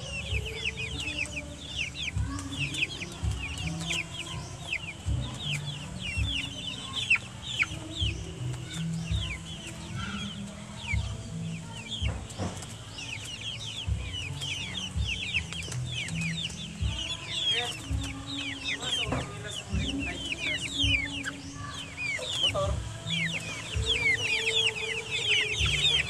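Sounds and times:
chickens peeping and chirping: 0.0 - 26.0
low thuds: 13.8 - 18.4.

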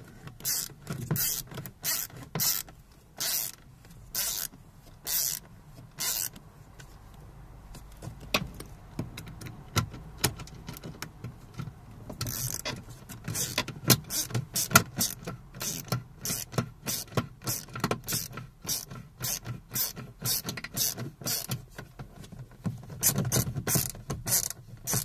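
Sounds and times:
screwdriver scraping twists: 0.2 - 6.4, 12.2 - 21.6, 23.0 - 25.0.

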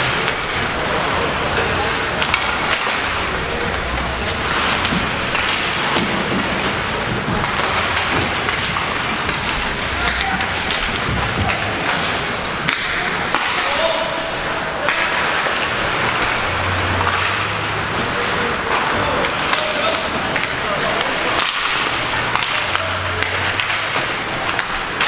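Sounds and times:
distant players' voices: 0.0 - 25.0
skates scraping ice: 0.0 - 25.0
sticks and puck clacking: 0.0 - 25.0.

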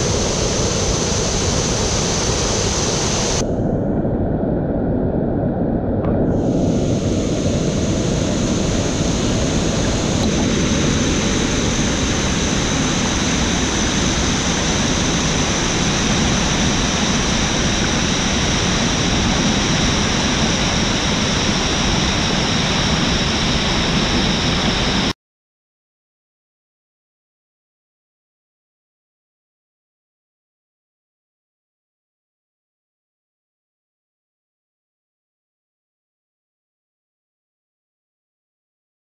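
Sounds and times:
water roaring over waterfall: 0.0 - 3.6, 6.1 - 25.1.

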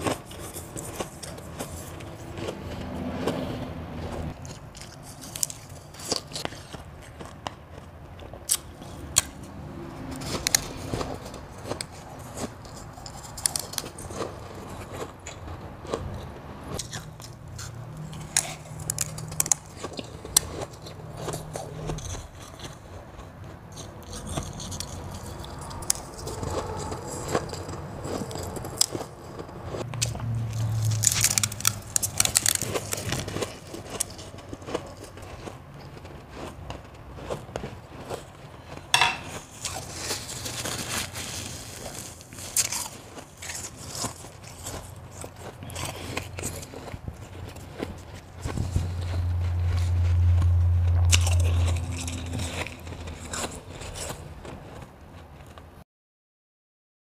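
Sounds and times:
ice crunching: 30.5 - 49.2.

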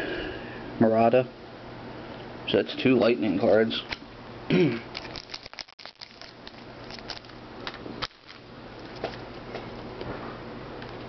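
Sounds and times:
cards clicking and rustling: 4.9 - 9.2.

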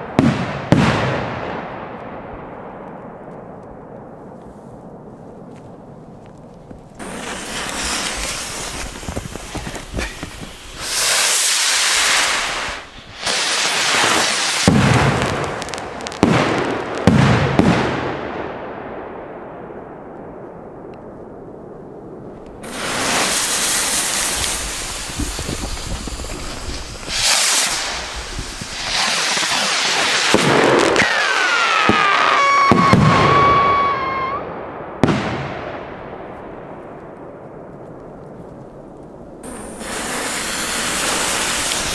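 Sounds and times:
firework bangs echoing: 0.0 - 2.8, 7.0 - 19.4, 22.6 - 36.9, 39.4 - 41.9
sharp cracks: 5.4 - 18.1
firework rockets hissing: 7.0 - 17.2, 22.6 - 34.4, 39.4 - 41.9.

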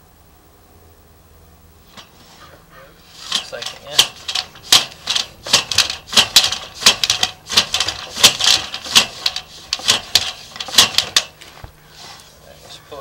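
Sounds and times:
cable reel clicking and clattering: 3.2 - 12.2.

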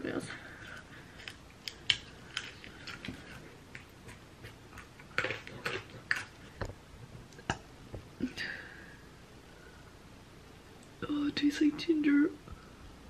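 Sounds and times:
sharp clicks and crackly crunches: 0.6 - 7.6.

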